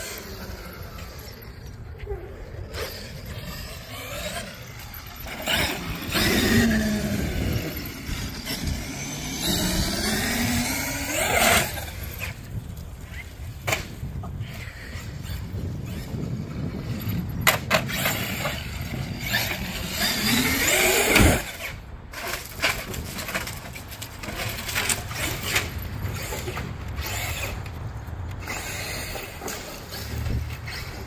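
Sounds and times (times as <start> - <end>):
electric motor whining: 0.0 - 13.6, 14.6 - 21.8.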